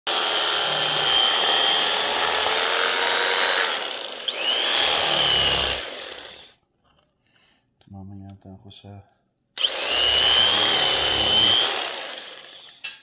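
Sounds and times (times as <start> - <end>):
electric carving knife whining: 0.0 - 6.6, 9.6 - 13.0.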